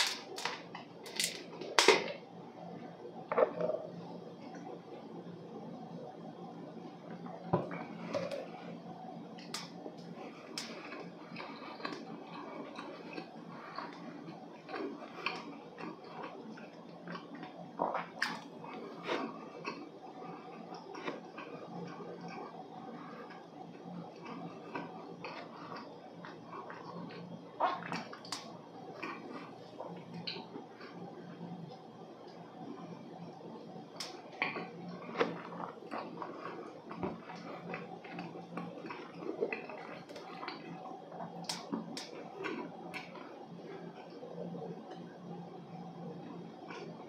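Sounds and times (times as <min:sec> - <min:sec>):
swallowing: 0:03.3 - 0:04.8, 0:09.4 - 0:31.8, 0:34.0 - 0:44.2
chewing dry cake: 0:06.9 - 0:47.0.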